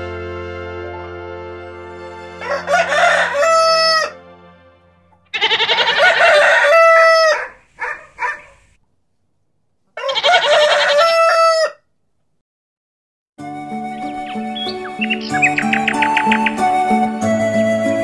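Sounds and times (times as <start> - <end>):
background music: 0.0 - 6.8, 13.4 - 18.0
rooster clucking: 2.4 - 4.2, 5.3 - 8.8, 10.0 - 11.8
rooster crowing: 2.4 - 4.3, 5.4 - 8.6, 10.0 - 11.9, 13.8 - 16.8.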